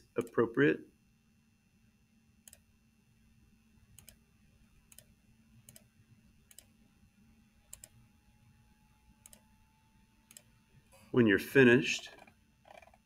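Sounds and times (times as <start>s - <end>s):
computer mouse clicks: 0.2s - 0.4s, 2.4s - 2.7s, 4.0s - 4.2s, 4.9s - 5.1s, 5.7s - 5.9s, 6.5s - 6.7s, 7.7s - 8.0s, 9.2s - 9.5s, 10.3s - 10.5s, 12.1s - 13.0s.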